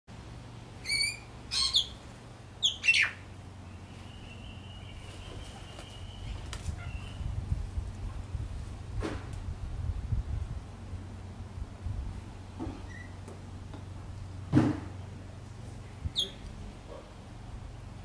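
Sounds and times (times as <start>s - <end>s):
lorikeet screeching calls: 0.8s - 2.0s, 2.6s - 3.2s, 6.0s - 7.2s, 16.2s - 16.4s
low rumble: 6.0s - 12.4s.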